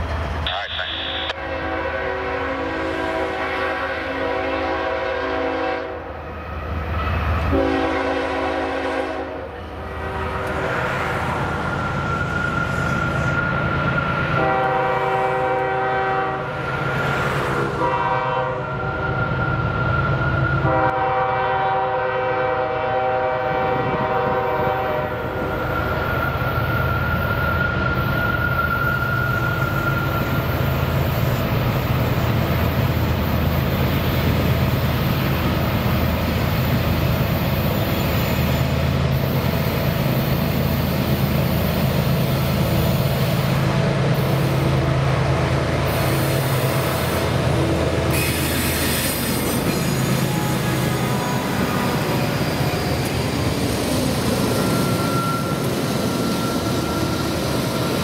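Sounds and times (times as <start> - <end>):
locomotive chime air horn blasts: 0.5 - 6.0, 7.5 - 10.6, 14.3 - 16.6, 17.8 - 19.1, 20.6 - 25.3
high ringing tone: 54.3 - 58.0.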